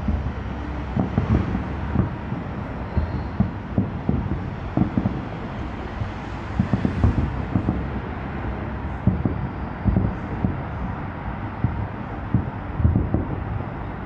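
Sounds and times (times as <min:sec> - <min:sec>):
distant firework booms: 0:00.0 - 0:05.3
low rumble: 0:00.0 - 0:14.0.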